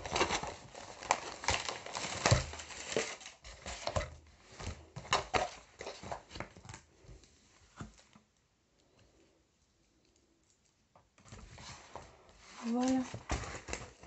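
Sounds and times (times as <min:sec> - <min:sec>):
canvas sheets crinkling: 0:00.0 - 0:06.9, 0:11.3 - 0:14.0.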